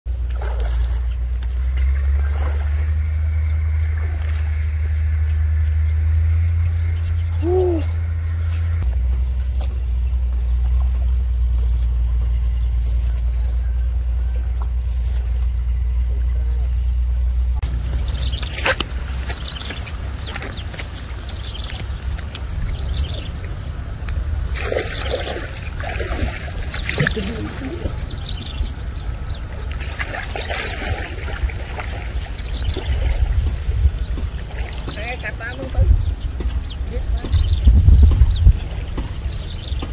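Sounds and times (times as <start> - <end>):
water splashing and trickling: 0.1 - 36.0
steady low rumble: 0.1 - 39.9.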